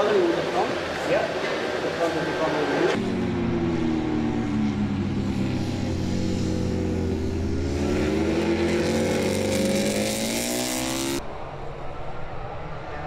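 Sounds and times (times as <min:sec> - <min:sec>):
race bike engine revving: 0:03.0 - 0:11.2.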